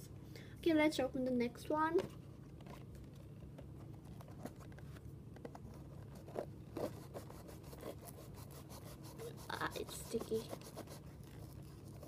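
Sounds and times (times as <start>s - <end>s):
fingers scraping cardboard: 5.7s - 12.0s.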